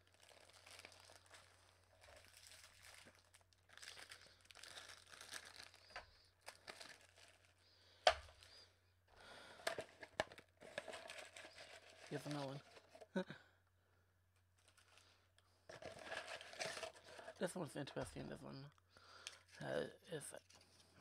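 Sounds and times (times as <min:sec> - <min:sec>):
cardboard packaging rustling: 0:00.0 - 0:08.6, 0:09.5 - 0:13.2, 0:14.6 - 0:17.5.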